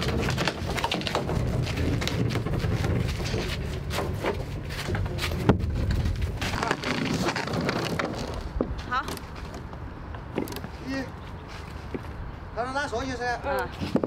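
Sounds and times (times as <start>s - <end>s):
footsteps shuffling on concrete: 0.0s - 9.8s, 10.6s - 12.4s
boat hull scuffs and knocks: 0.0s - 10.7s.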